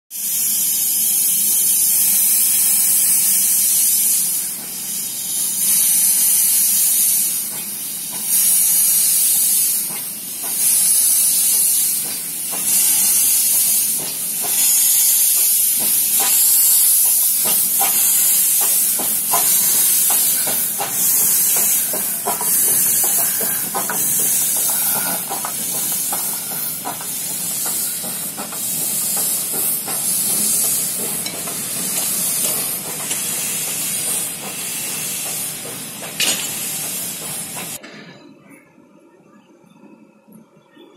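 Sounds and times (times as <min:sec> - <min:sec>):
steam locomotive hissing steam: 0:00.1 - 0:37.8
metallic clanks and knocks: 0:36.0 - 0:36.7.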